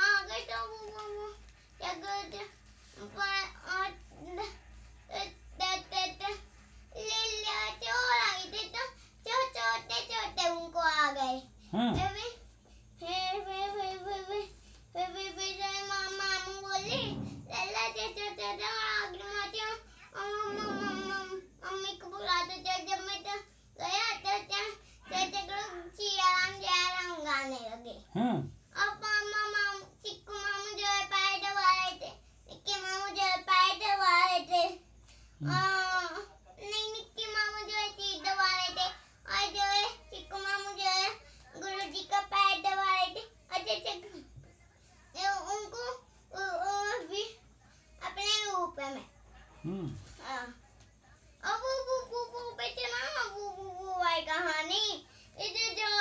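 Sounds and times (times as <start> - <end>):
boy singing in a high voice: 13.0 - 34.8, 35.4 - 44.1.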